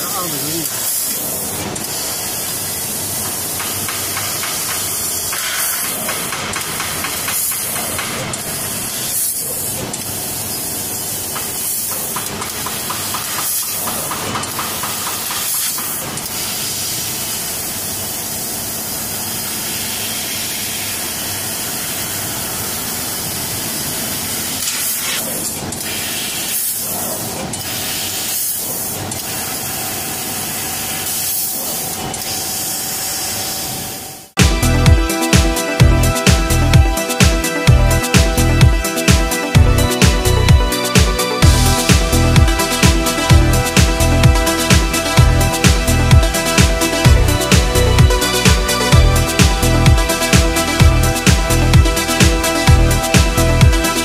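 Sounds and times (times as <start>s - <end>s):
laser cutter gas hiss: 0.0s - 34.3s.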